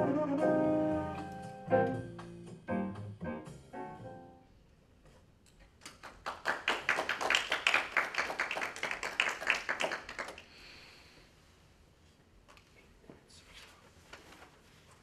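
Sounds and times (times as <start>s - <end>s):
audience clapping: 5.8s - 10.6s.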